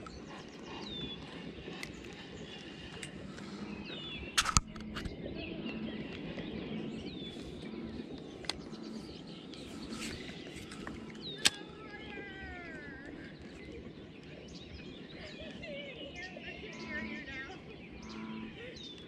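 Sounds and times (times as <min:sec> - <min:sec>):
birds calling: 0:00.0 - 0:19.0
steady outdoor hiss: 0:00.0 - 0:19.0.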